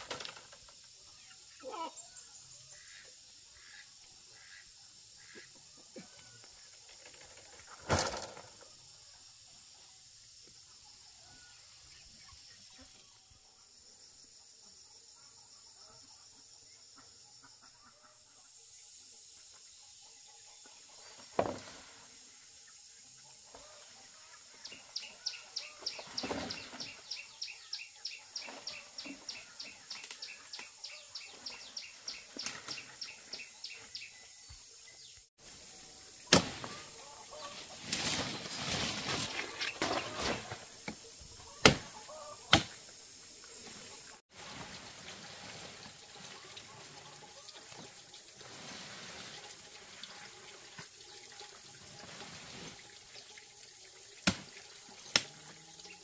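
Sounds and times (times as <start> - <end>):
branches dragged through vegetation: 36.3 - 40.8.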